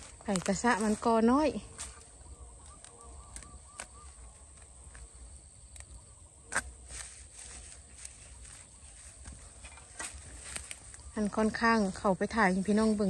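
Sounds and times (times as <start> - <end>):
dry leaves and twigs crackling: 0.0 - 13.0
twig snapping sharply: 2.6 - 5.1.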